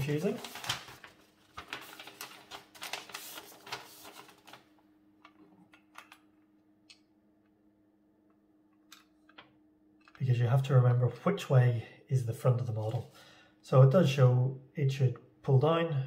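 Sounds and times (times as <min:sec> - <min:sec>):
paper crinkling: 0:00.0 - 0:04.7.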